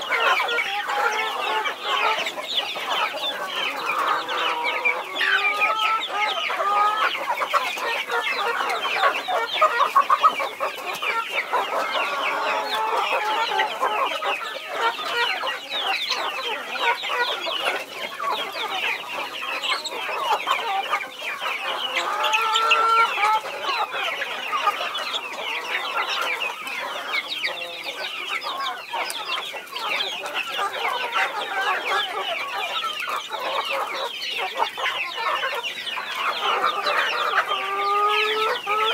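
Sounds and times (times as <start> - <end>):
chicks peeping: 0.0 - 38.9
hen clucking: 0.0 - 38.9.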